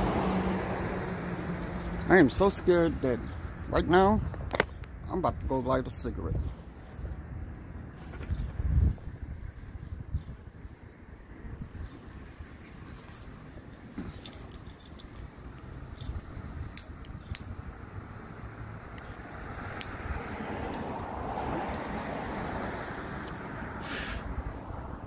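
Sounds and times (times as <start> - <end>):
car passing: 0.0 - 3.0, 17.7 - 25.0
street traffic: 0.0 - 25.0
small sharp clicks: 14.3 - 17.6, 19.7 - 20.0.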